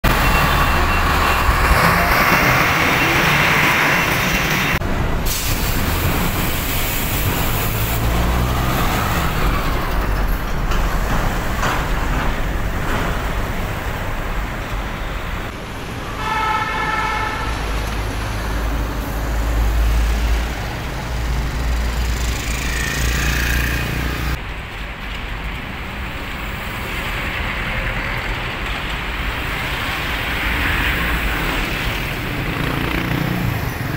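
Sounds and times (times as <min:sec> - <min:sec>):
diesel trucks driving past: 0:00.0 - 0:24.4
vehicle horn: 0:16.1 - 0:17.7.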